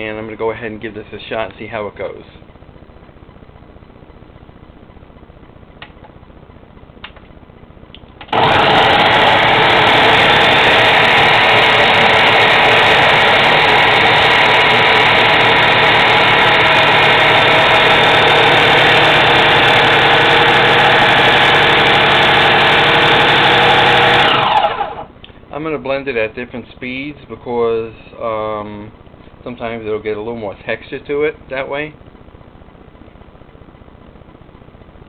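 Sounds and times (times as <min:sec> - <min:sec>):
blender motor running: 0:08.3 - 0:25.1.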